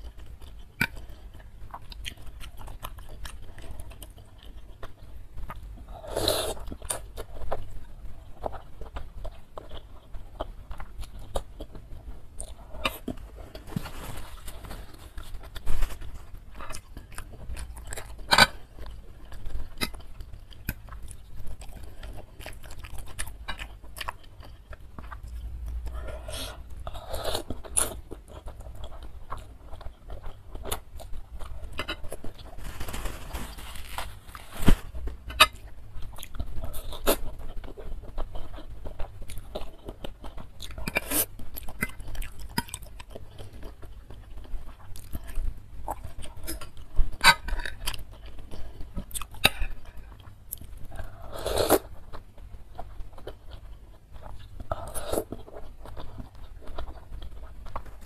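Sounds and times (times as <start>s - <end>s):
wet chewing: 34.9s - 58.0s.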